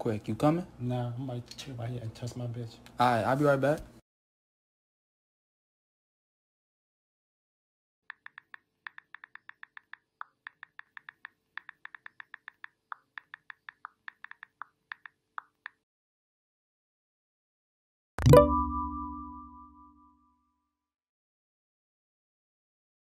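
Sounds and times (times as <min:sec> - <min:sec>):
smartphone keyboard taps: 0:08.1 - 0:15.8.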